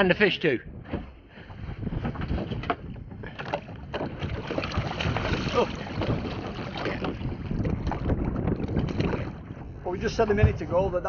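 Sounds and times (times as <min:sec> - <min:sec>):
wind buffeting microphone: 0:00.0 - 0:11.0
water lapping at boat: 0:00.8 - 0:11.0
water splashing: 0:03.3 - 0:09.7.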